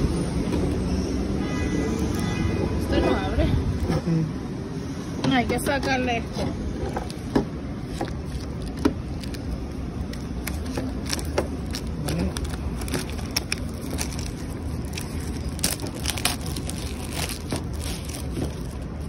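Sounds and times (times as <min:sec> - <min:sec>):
street traffic hum: 0:00.0 - 0:19.0
plastic wrap crinkling: 0:07.8 - 0:19.0.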